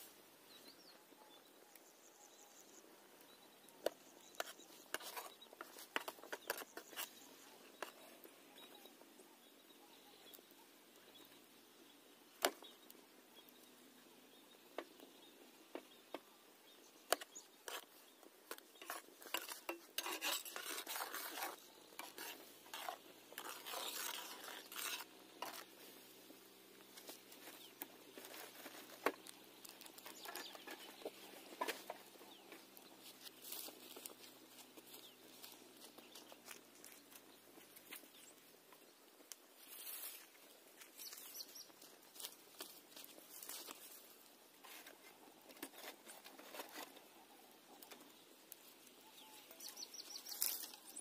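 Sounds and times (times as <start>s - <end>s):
metal spatula scraping iron pot: 18.8s - 25.6s.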